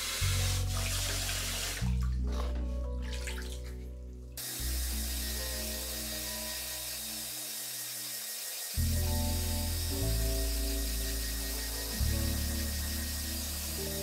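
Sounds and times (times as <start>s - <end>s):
shower spraying into plastic tub: 0.0s - 2.0s
background music with bass: 0.0s - 6.5s, 8.8s - 14.0s.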